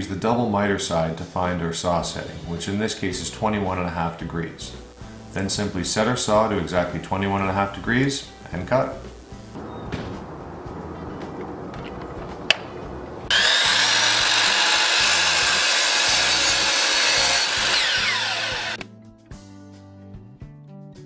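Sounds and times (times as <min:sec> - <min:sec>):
background music: 0:00.0 - 0:21.0
miter saw cutting wood: 0:13.3 - 0:18.8
saw blade spinning down: 0:13.3 - 0:18.8.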